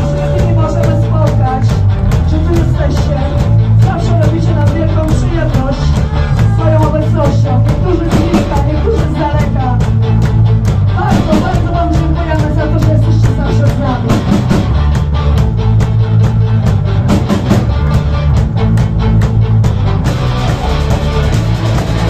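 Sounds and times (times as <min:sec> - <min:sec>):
bass guitar: 0:00.0 - 0:22.0
distorted electric guitars: 0:00.0 - 0:22.0
fast drumbeat: 0:00.0 - 0:22.0
woman singing into a microphone: 0:02.3 - 0:09.7.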